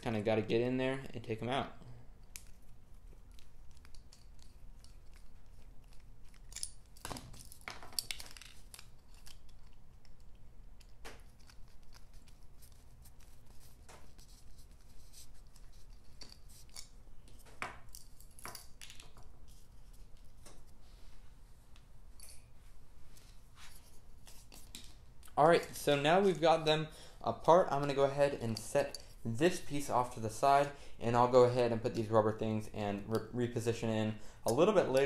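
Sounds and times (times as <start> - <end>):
screwdriver clicks and scrapes: 2.2 - 18.7
plastic parts handled: 2.2 - 20.6.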